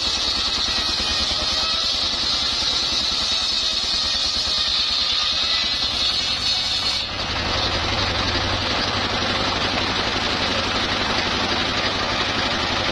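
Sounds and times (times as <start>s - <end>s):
circular saw blade ripping wood: 0.0s - 7.7s
diesel engine chugging: 0.0s - 12.9s.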